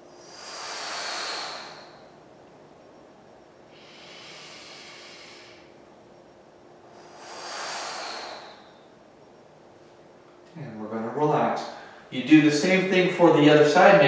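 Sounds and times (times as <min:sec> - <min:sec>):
man breathing deeply: 0:00.1 - 0:02.3, 0:03.6 - 0:05.9, 0:06.9 - 0:09.3, 0:11.6 - 0:12.1.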